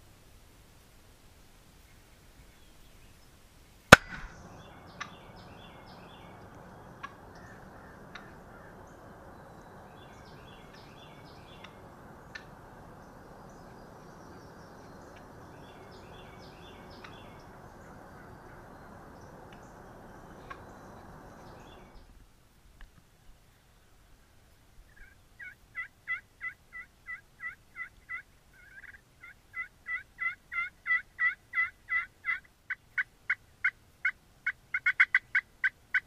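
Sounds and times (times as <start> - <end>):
outdoor hiss: 0.0 - 36.0
shotgun shot: 3.9 - 4.4
birds chattering: 3.9 - 22.1.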